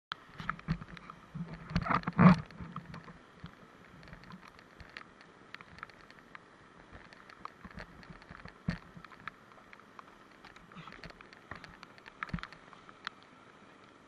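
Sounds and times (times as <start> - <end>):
muffled rush of water: 0.1 - 14.0
knocks and splashes against kayak: 0.4 - 6.2.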